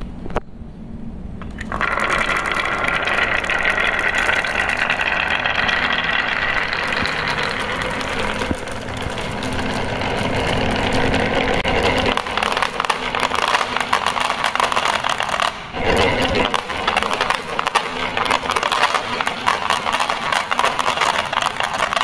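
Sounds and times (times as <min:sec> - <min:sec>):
glass marbles clattering on wood: 0:01.4 - 0:22.0
marbles dropping into plastic truck: 0:01.4 - 0:22.0.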